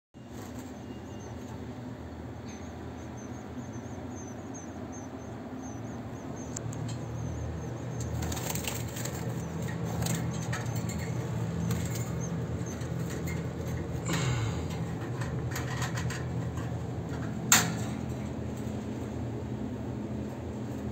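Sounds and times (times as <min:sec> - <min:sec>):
steady low hum: 0:00.2 - 0:20.9
faint high twittering: 0:02.4 - 0:12.8
birds fluttering wings: 0:07.8 - 0:16.6.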